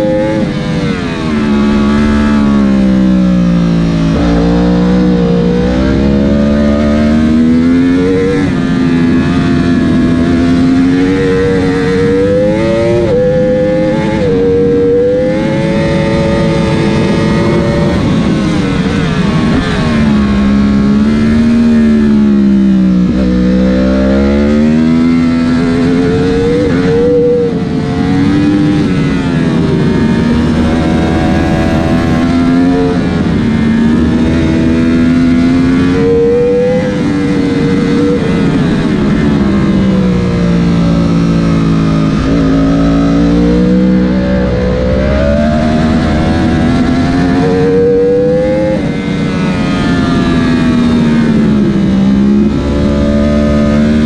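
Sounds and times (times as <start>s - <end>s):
motorcycle engine revving: 0.0s - 54.0s
wind rushing: 24.8s - 53.7s.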